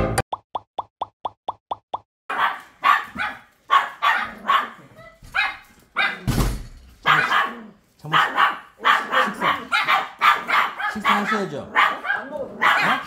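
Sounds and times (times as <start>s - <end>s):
dogs barking excitedly: 2.3s - 6.3s, 7.0s - 13.0s.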